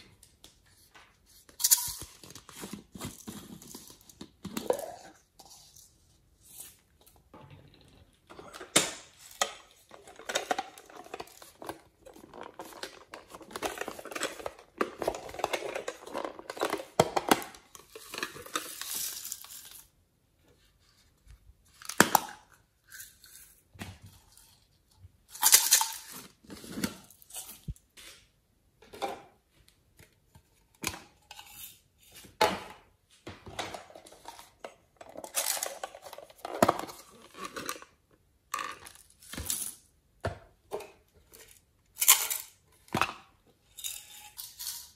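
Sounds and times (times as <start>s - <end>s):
plastic containers clicking and knocking: 7.3s - 18.9s, 32.3s - 39.5s.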